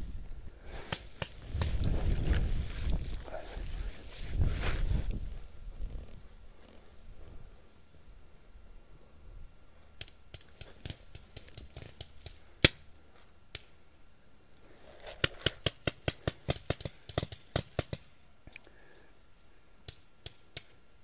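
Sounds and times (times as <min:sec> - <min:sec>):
paintball marker shots: 0:15.2 - 0:18.1.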